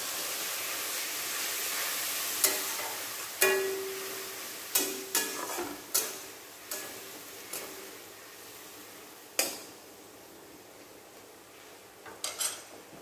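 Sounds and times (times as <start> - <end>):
sizzling: 0.0 - 13.0
metal spatula knocking pan: 3.4 - 4.1.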